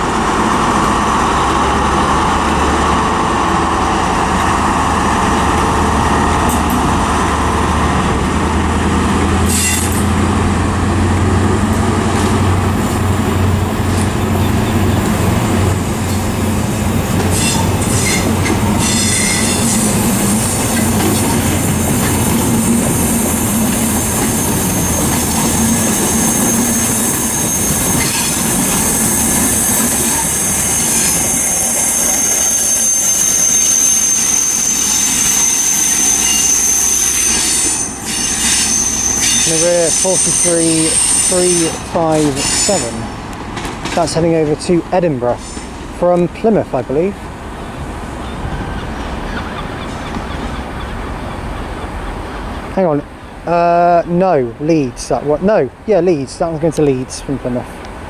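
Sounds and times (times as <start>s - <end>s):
diesel engine drone: 0.0s - 31.9s
high steady wheel squeal: 9.3s - 10.2s, 12.2s - 43.2s, 47.7s - 52.8s
wheels clicking over rail joints: 41.6s - 46.6s.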